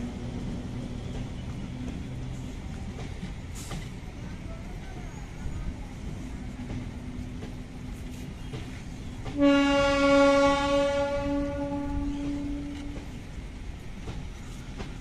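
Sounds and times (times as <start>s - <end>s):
train rumbling past: 0.0s - 15.0s
train horn blast: 9.3s - 13.2s.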